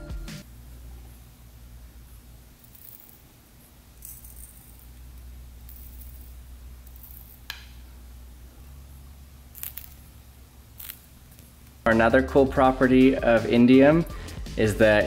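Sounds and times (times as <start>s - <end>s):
metal faint crackles: 9.5s - 11.9s.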